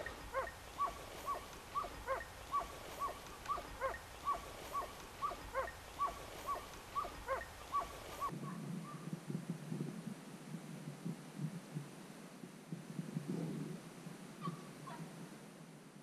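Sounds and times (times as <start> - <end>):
hunting dogs barking: 0.0 - 9.0.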